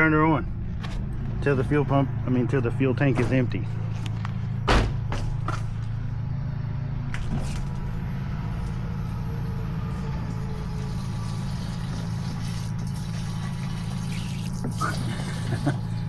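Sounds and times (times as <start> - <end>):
fuel pump humming: 0.0 - 16.0
fuel pouring into plastic can: 10.7 - 15.9.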